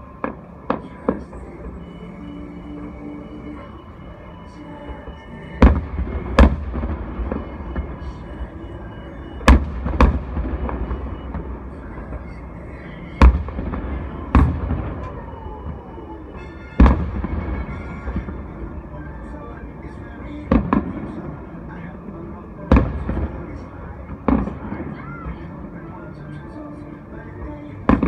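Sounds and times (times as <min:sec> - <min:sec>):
faint music: 0:00.0 - 0:28.0
distant fireworks booming: 0:05.6 - 0:21.5, 0:22.6 - 0:25.3.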